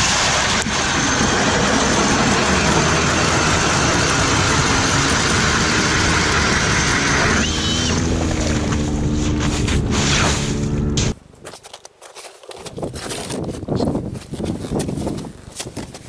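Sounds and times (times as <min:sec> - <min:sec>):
ice auger boring through ice: 0:00.0 - 0:11.2.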